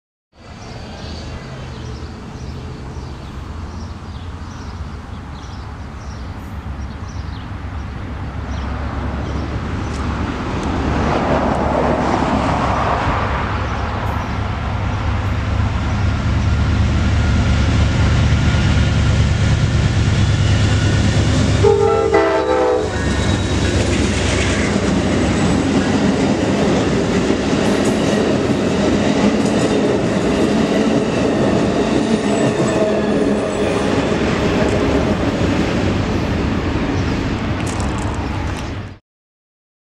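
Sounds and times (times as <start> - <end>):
diesel locomotive rumble: 0.4 - 38.9
passenger cars rolling past: 0.5 - 22.0, 22.6 - 38.8
train horn blast: 21.5 - 23.6.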